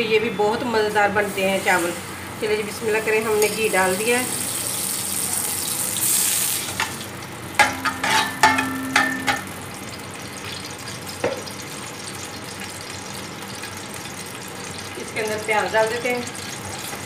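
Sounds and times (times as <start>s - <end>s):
ghee sizzling in a pot: 0.8s - 17.0s
onions sizzling: 0.8s - 17.0s
metal spoon clinking against pot: 7.6s - 9.5s.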